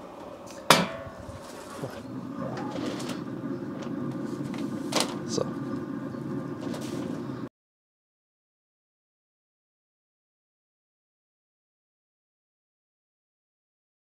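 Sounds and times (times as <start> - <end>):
smoker low hum: 0.0 - 7.5.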